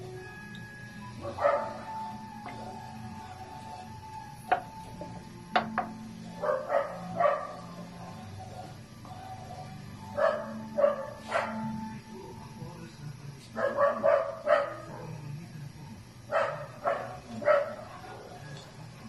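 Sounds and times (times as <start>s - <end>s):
steady low hum: 0.0s - 19.0s
dog barking: 1.2s - 1.9s, 6.4s - 11.7s, 13.6s - 15.1s, 16.3s - 18.6s.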